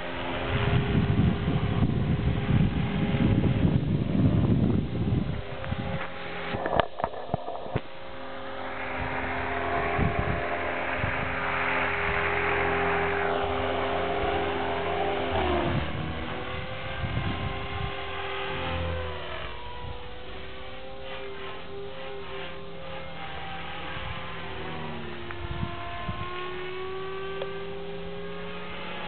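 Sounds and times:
rc helicopter motor whine: 0.0 - 29.0
rotor noise rush: 4.5 - 29.0.

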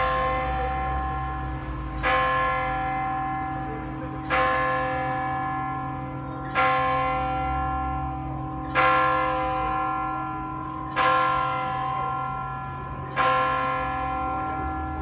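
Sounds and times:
clock tower bell striking: 0.0 - 15.0.

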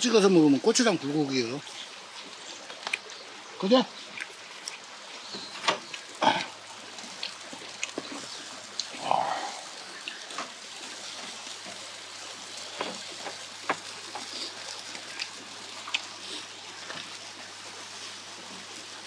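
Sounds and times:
sharp pops and crackles: 2.6 - 3.2, 12.7 - 16.1
meat sizzling on a grill: 4.9 - 19.0.

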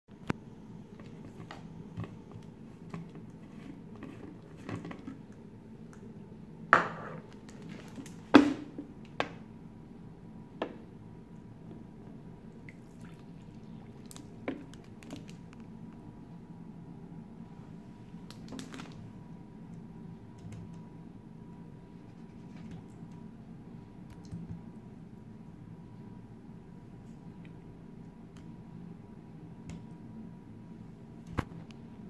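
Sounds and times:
water pouring into cup: 12.6 - 15.3.

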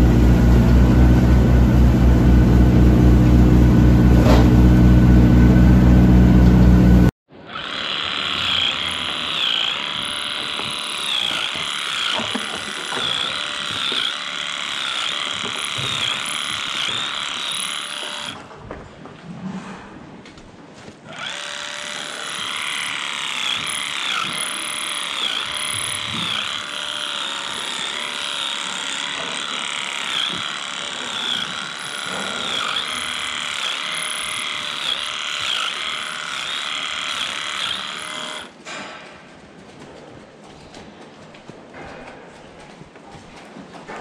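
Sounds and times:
electric clippers buzzing: 4.4 - 18.4, 21.1 - 38.5.

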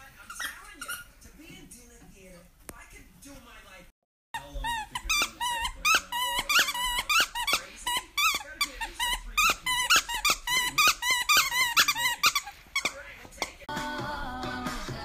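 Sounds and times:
dog toy squeaking: 0.2 - 1.1, 4.4 - 13.6
dog chewing toy: 4.4 - 13.7.

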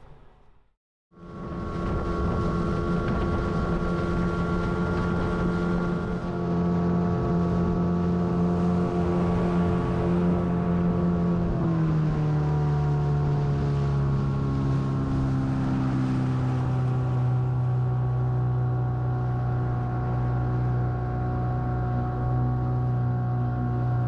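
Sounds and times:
outboard motor droning: 1.1 - 24.0.

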